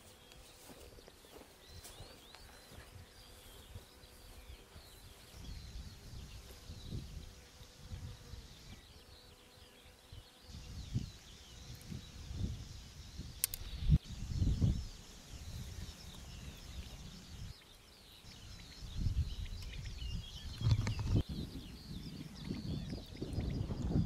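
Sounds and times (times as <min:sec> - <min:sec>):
small birds chirping: 0:00.0 - 0:24.0
sharp click: 0:13.4 - 0:13.8.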